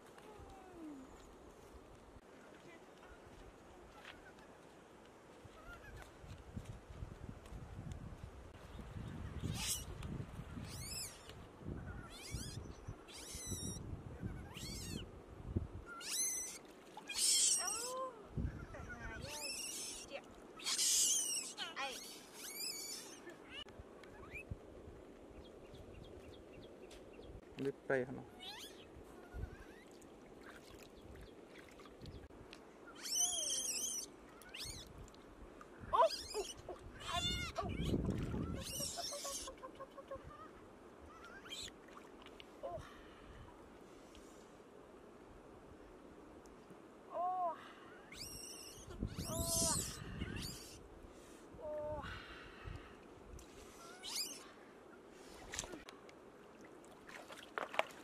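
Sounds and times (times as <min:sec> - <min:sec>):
high-pitched animal cries: 0:09.5 - 0:09.9, 0:10.7 - 0:11.2, 0:11.9 - 0:15.0, 0:15.9 - 0:17.9, 0:18.6 - 0:23.6, 0:28.3 - 0:29.9, 0:33.0 - 0:34.9, 0:35.9 - 0:40.5, 0:41.1 - 0:41.7, 0:48.0 - 0:50.8, 0:53.8 - 0:54.4.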